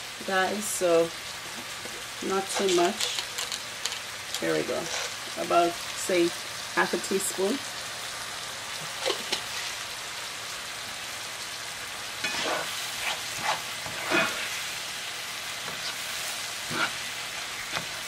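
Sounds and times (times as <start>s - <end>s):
vegetables sizzling in oil: 0.0s - 18.0s
spatula scraping a pan: 1.6s - 5.3s, 12.2s - 14.9s, 15.6s - 18.0s.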